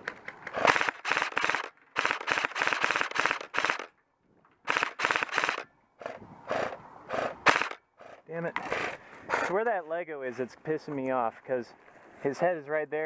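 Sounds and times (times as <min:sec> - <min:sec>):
airsoft rifle full-auto bursts: 0:00.5 - 0:03.9, 0:04.6 - 0:05.7, 0:07.4 - 0:07.8.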